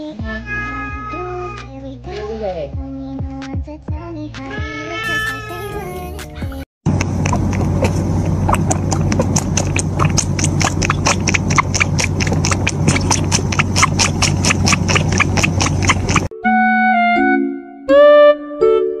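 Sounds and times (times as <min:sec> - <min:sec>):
steady low hum: 0:06.9 - 0:16.3
cat sucking from bottle: 0:07.0 - 0:16.3.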